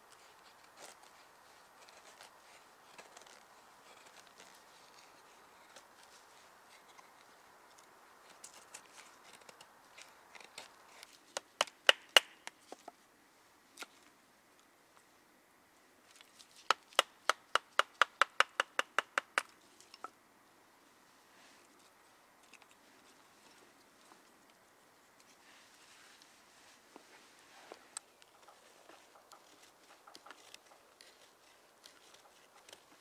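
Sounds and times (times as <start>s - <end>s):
knife shaving wood: 0.1s - 11.5s, 27.6s - 33.0s.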